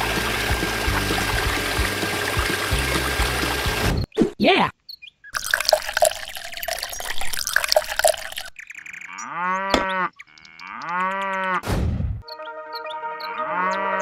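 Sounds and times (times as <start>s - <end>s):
water trickling into bottle cap: 5.4s - 8.6s
cow mooing: 9.2s - 11.6s, 13.2s - 14.0s.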